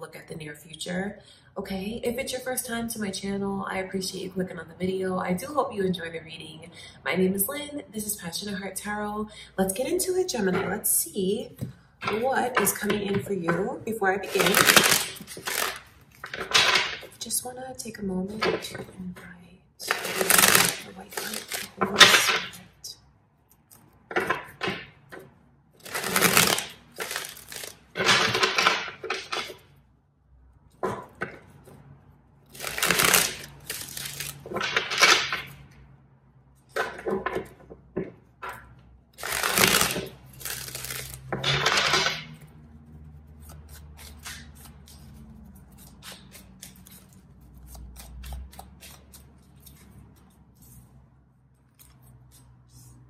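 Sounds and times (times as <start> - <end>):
cards being shuffled: 14.3 - 17.2, 19.8 - 22.6, 25.8 - 29.6, 32.5 - 35.5, 39.2 - 42.4, 43.0 - 51.0.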